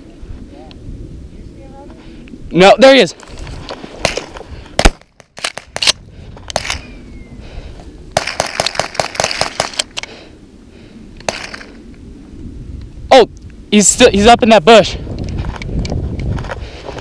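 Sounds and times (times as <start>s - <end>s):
shotgun shot: 4.0s - 6.0s, 8.2s - 9.9s, 11.3s - 11.8s.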